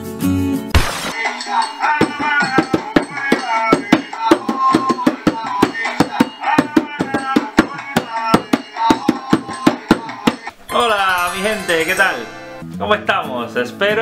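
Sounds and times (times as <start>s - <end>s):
pitched melody: 0.9s - 13.0s
hand drum played with palms: 2.0s - 10.5s.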